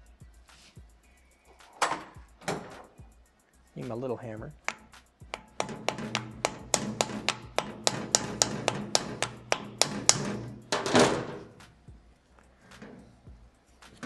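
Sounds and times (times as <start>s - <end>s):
hammer tapping a screwdriver: 4.6s - 10.8s.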